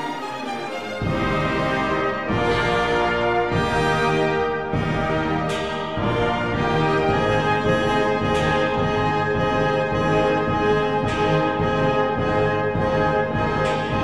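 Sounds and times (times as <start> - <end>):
orchestral brass music: 0.0 - 14.0.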